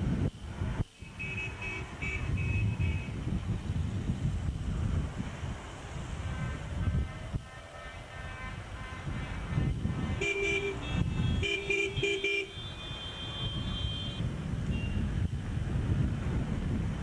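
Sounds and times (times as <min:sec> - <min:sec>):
passing engines rumbling: 0:00.0 - 0:17.0
wind: 0:00.0 - 0:17.0
car horns tooting: 0:01.0 - 0:03.2, 0:06.3 - 0:15.1
thin high horn tone: 0:10.2 - 0:15.1.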